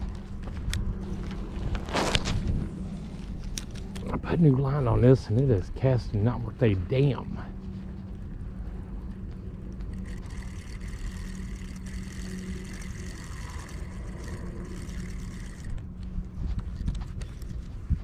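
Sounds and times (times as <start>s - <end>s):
low mechanical hum: 0.0s - 18.0s
spinning reel whirring: 9.6s - 17.8s.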